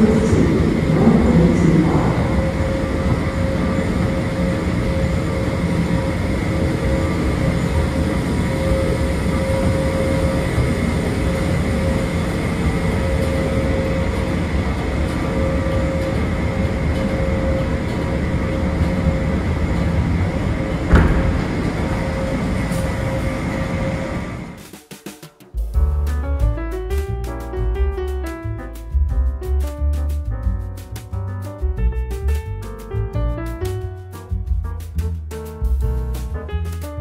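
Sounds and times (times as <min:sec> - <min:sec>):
escalator running: 0:00.0 - 0:24.6.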